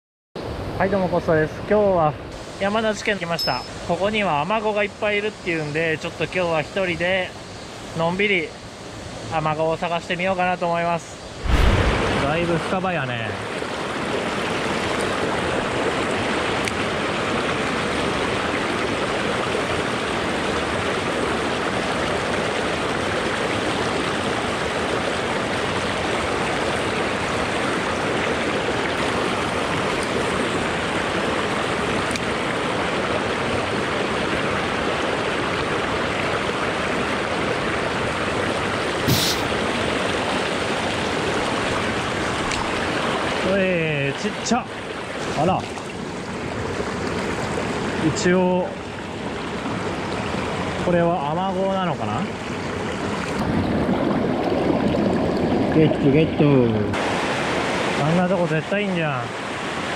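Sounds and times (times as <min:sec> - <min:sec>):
stream rushing over boulders: 0:02.3 - 0:59.9
sharp click: 0:39.1 - 0:39.5.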